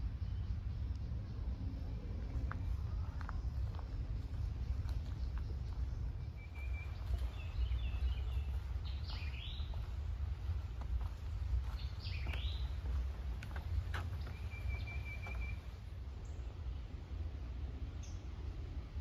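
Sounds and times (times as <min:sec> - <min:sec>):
steady low rumble: 0:00.0 - 0:19.0
wild birds calling: 0:01.4 - 0:16.7
footsteps on a dirt trail: 0:02.2 - 0:15.8.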